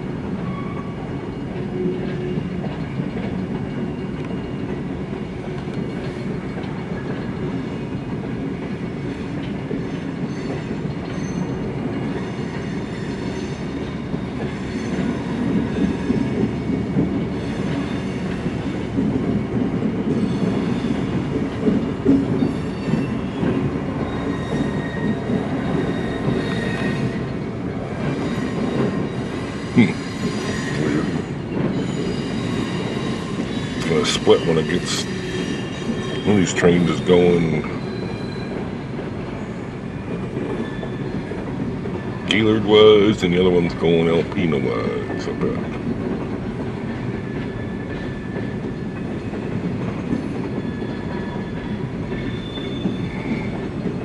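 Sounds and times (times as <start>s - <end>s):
steel wheels rumbling on rail: 0.0s - 54.0s
faint wheel squeal: 10.3s - 11.6s, 24.1s - 27.2s, 28.2s - 38.6s, 40.5s - 41.3s, 50.6s - 53.6s.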